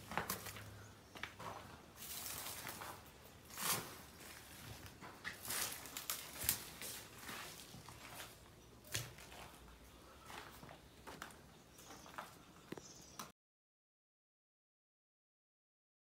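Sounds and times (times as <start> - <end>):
rustling: 0.0 - 12.3
footsteps scuffing on dirt: 0.0 - 13.2.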